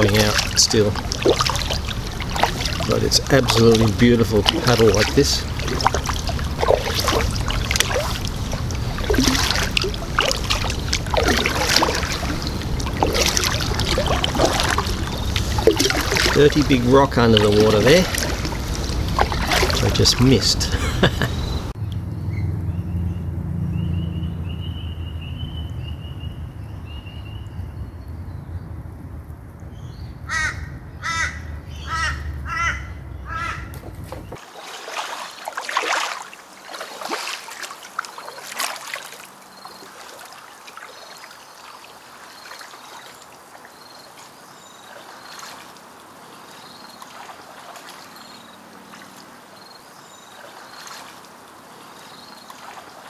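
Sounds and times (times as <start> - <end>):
paddle strokes splashing: 0.0 - 21.7, 33.7 - 53.0
water trickling: 0.0 - 21.8, 33.8 - 53.0
low rumble: 5.4 - 16.2
crow cawing: 30.3 - 33.7.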